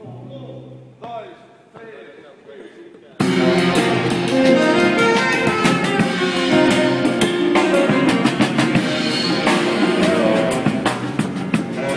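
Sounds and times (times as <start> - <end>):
drum and cymbal hits: 3.2 - 11.9
guitar: 3.2 - 11.9
live band playing: 3.2 - 11.9.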